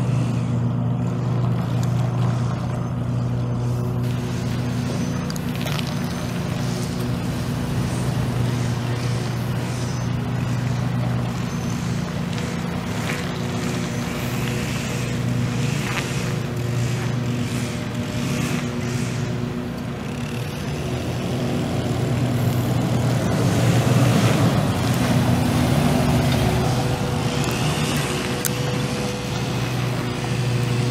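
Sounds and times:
pickup engine idling: 0:00.0 - 0:30.9.

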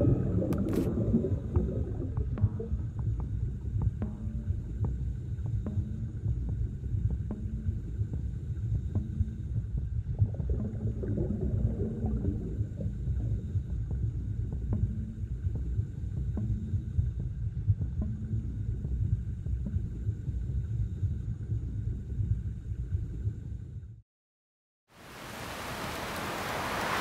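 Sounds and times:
faint underwater clicks: 0:00.0 - 0:04.9
underwater rumble of moving water: 0:00.0 - 0:24.0.

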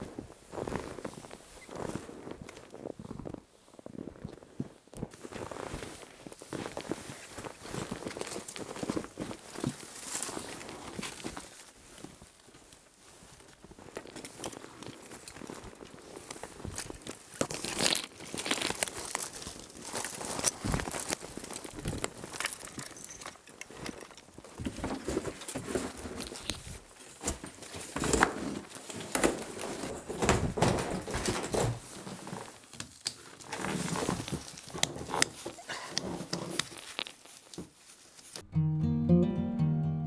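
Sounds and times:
footsteps crunching in snow: 0:00.0 - 0:22.8
plastic snowshoes clicking and rattling: 0:00.0 - 0:38.4.

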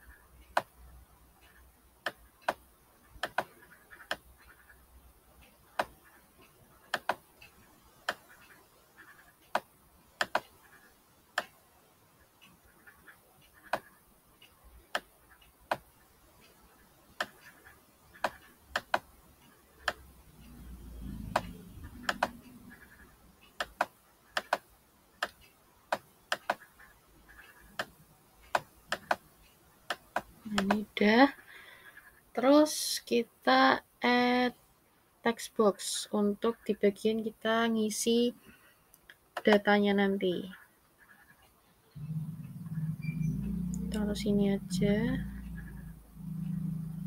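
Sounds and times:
computer mouse clicking: 0:00.0 - 0:00.8, 0:01.4 - 0:04.8, 0:05.4 - 0:11.6, 0:12.4 - 0:31.0, 0:38.4 - 0:39.9, 0:40.5 - 0:47.0
low rumble: 0:42.0 - 0:47.0.

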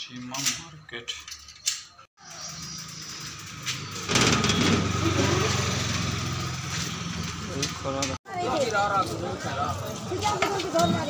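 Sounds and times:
small engine running: 0:02.2 - 0:07.5.

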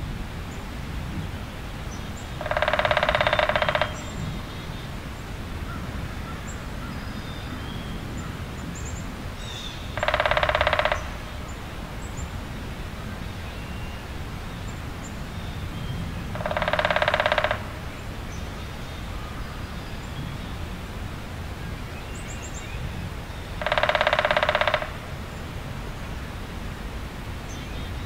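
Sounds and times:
rapidly pulsed animal trill: 0:02.4 - 0:04.0, 0:10.0 - 0:11.1, 0:16.4 - 0:17.7.

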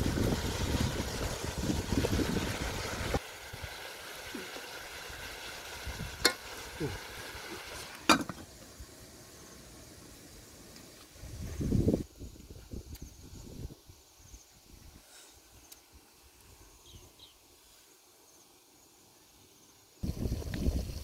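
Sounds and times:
oil sizzling: 0:00.0 - 0:11.2.

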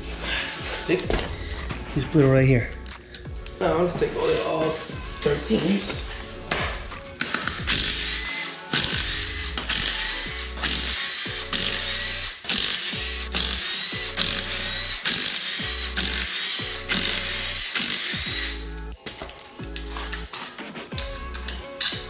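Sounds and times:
power ratchet whining bursts: 0:07.4 - 0:18.8.

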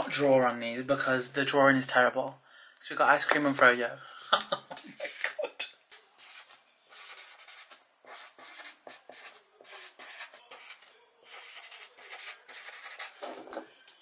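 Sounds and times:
marker writing on paper: 0:06.2 - 0:13.6.

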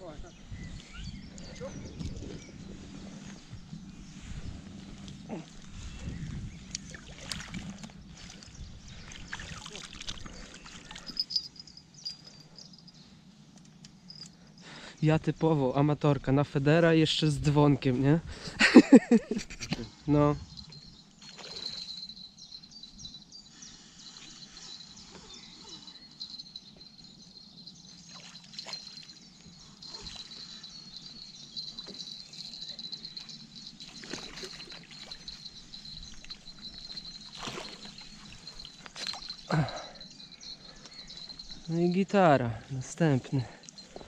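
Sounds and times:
water sloshing and splashing: 0:06.8 - 0:11.2, 0:31.8 - 0:39.4
high-pitched chirring: 0:20.2 - 0:42.0.

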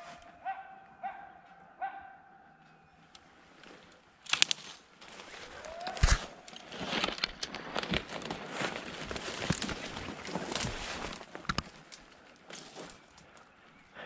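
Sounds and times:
footsteps through dry leaves: 0:04.4 - 0:13.2.

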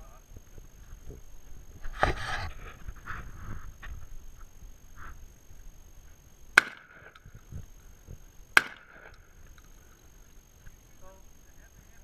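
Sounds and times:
rifle shots ringing: 0:06.6 - 0:07.2, 0:08.6 - 0:09.3.

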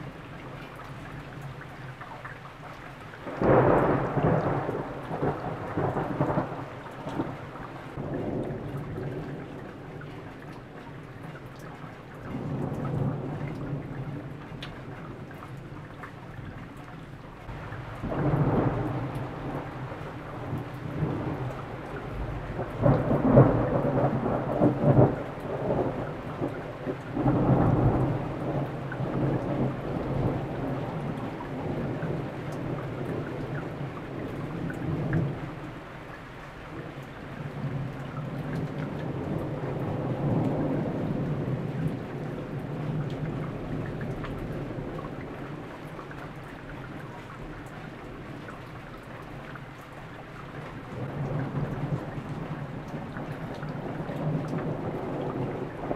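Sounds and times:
steady rain: 0:00.0 - 0:55.9
thunder rolling: 0:03.2 - 0:09.3, 0:17.4 - 0:33.8.

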